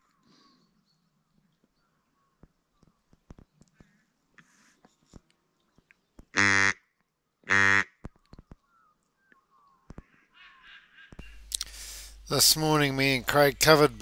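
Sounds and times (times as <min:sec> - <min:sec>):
duck quacks: 0:06.4 - 0:06.8, 0:07.5 - 0:07.9.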